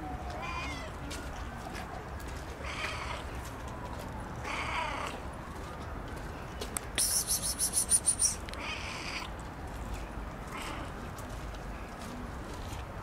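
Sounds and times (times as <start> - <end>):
cat meowing: 0.4 - 0.9
high-pitched trill: 7.0 - 8.4.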